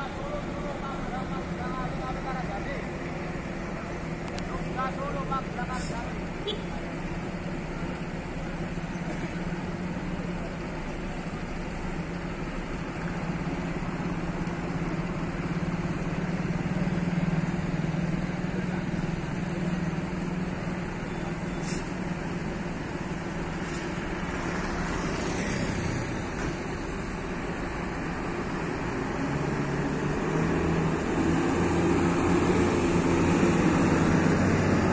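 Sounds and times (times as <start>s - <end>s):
bus diesel engine running: 0.0s - 34.9s
brief air hiss: 21.5s - 22.0s, 23.6s - 24.1s.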